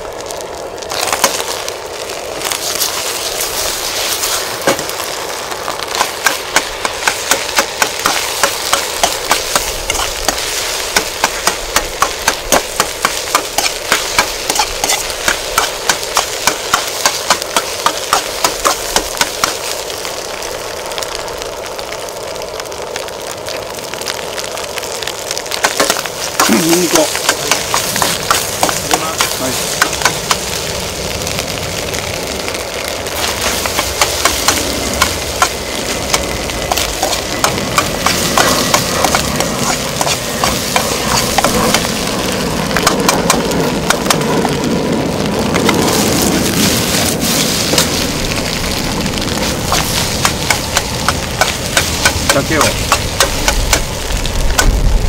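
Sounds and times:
rice sizzling in hot pan: 0.0 - 55.0
spatula striking and scraping pan: 6.0 - 19.5.

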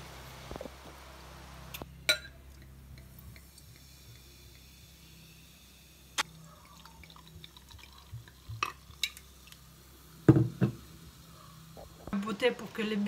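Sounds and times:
glass clinks: 2.1 - 2.4
bubbles fizzing in a glass: 2.6 - 12.1.

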